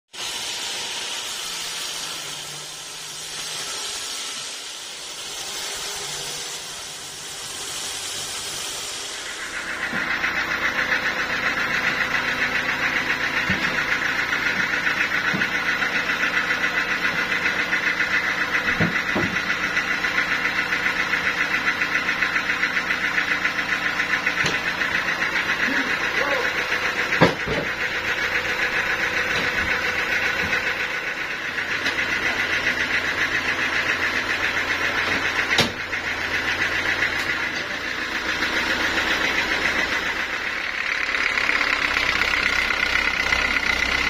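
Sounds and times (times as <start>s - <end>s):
band saw cutting wood: 0.2s - 19.4s.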